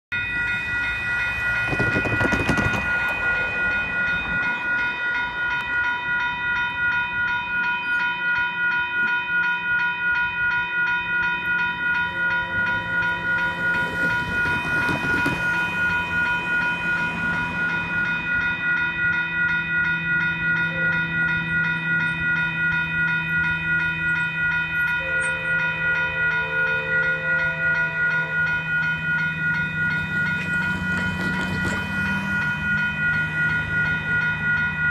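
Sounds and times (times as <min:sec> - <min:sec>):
railroad crossing bell dinging: 0:00.0 - 0:34.9
passing traffic whooshing: 0:00.2 - 0:07.4, 0:11.4 - 0:20.5, 0:25.6 - 0:34.9.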